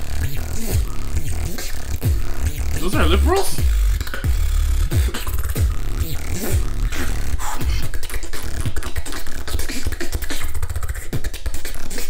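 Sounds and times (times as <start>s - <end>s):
beatboxing hi-hat and snare clicks: 0.0s - 2.9s, 3.6s - 12.0s
beatboxing bass kicks: 0.0s - 12.0s.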